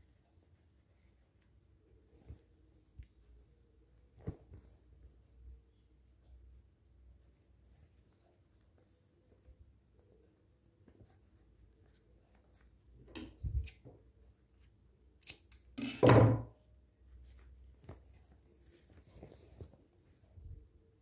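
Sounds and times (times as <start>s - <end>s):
canvas fabric rustling: 0.0s - 13.6s, 17.1s - 20.6s.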